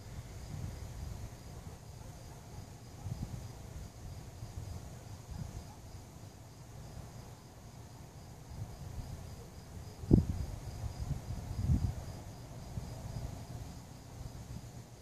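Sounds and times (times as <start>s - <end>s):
crickets chirping: 0.0s - 15.0s.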